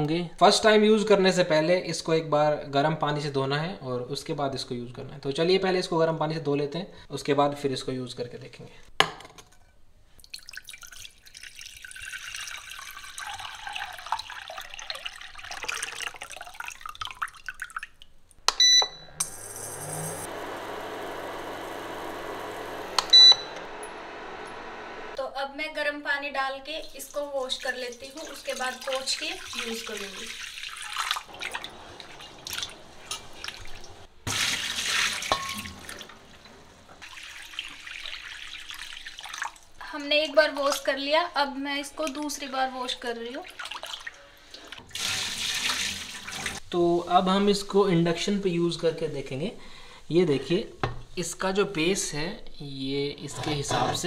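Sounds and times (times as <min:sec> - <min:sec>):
water pouring into a saucepan: 0:10.2 - 0:18.1, 0:26.8 - 0:41.0, 0:41.9 - 0:46.7
cooktop humming with high whine: 0:18.4 - 0:43.5
cooktop button beep: 0:18.5 - 0:19.3, 0:22.9 - 0:23.6.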